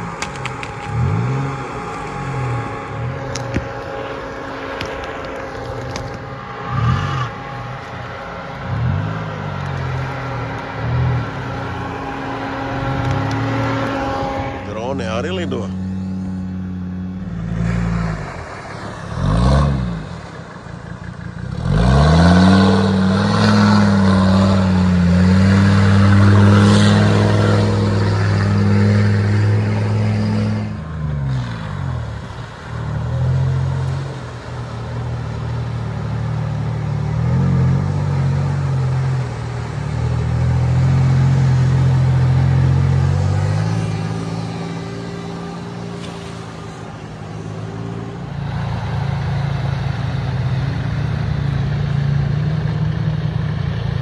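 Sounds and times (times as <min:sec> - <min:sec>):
engine running through water: 0:00.0 - 0:54.0
off-road vehicle engine revving: 0:00.0 - 0:54.0.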